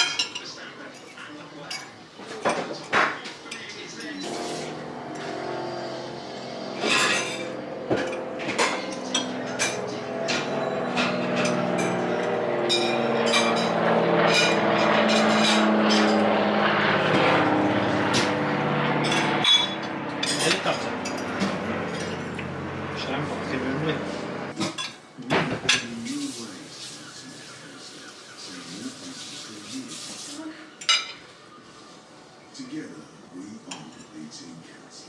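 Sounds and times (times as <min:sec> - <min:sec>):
forks clinking on plates: 0:00.0 - 0:05.5, 0:06.8 - 0:16.2, 0:19.0 - 0:22.4, 0:24.6 - 0:25.0, 0:30.8 - 0:31.3
helicopter flying overhead: 0:02.2 - 0:24.6.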